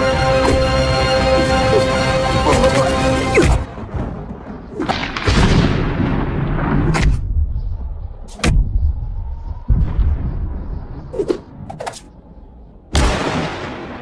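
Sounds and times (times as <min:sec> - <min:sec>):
film music: 0:00.0 - 0:06.8
rumbling boom: 0:03.6 - 0:11.1.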